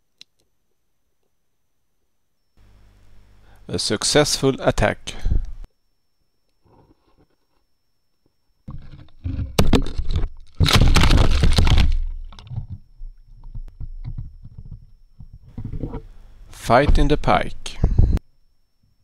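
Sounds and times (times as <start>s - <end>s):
knocks and scrapes on camera housing: 8.7s - 10.4s, 11.5s - 16.1s.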